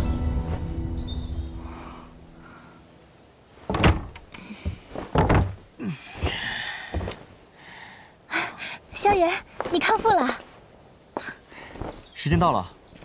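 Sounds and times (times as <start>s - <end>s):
wooden doors clunking: 3.6s - 7.1s
door creak: 3.7s - 4.4s.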